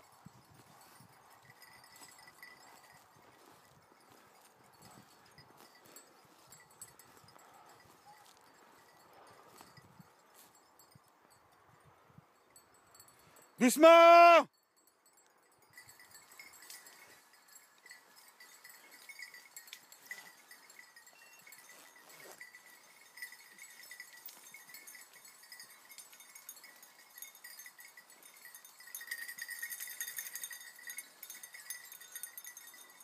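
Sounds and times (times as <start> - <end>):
dog collar bells tinkling: 0.0 - 33.0
rustling footsteps in vegetation: 1.9 - 8.8, 18.6 - 25.3.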